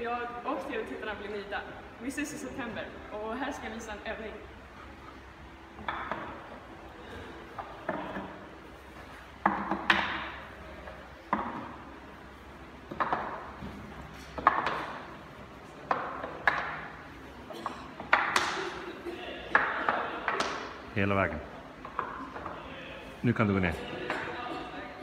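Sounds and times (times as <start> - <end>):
wooden pegs knocking into pegboard: 5.8 - 6.5, 9.4 - 10.4, 18.0 - 18.6.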